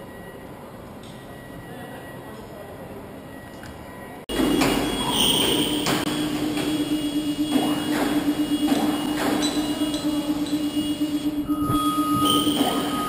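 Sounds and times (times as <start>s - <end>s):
workshop machinery hum: 4.3s - 13.0s.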